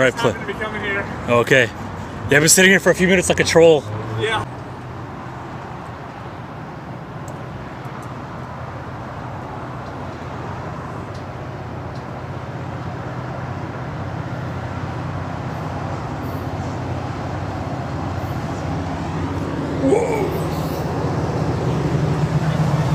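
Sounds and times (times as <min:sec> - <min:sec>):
train rumbling on tracks: 0:15.5 - 0:22.9.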